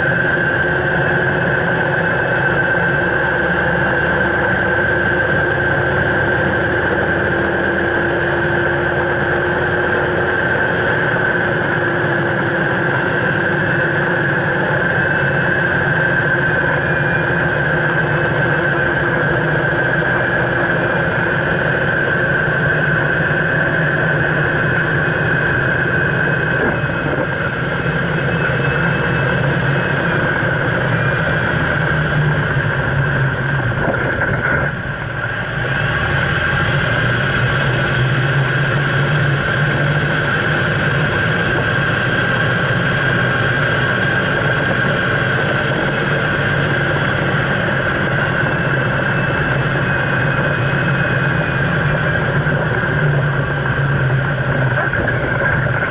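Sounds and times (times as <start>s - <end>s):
high-pitched whine: 0.0s - 55.9s
tyre road and engine noise: 0.0s - 55.9s.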